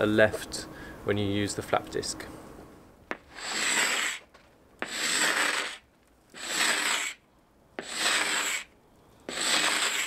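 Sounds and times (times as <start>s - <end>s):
scraper scraping boat hull: 3.2s - 5.8s, 6.4s - 7.2s, 7.8s - 8.7s, 9.3s - 10.0s.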